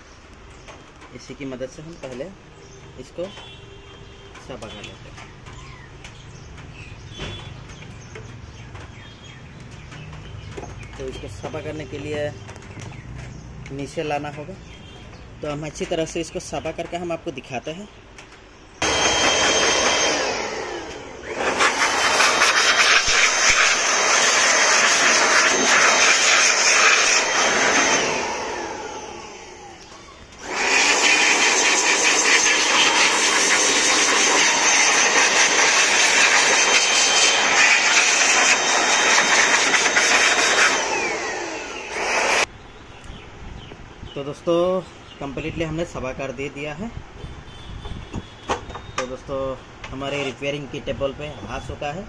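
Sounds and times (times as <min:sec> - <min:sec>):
electric air blower whining: 0:18.8 - 0:42.5.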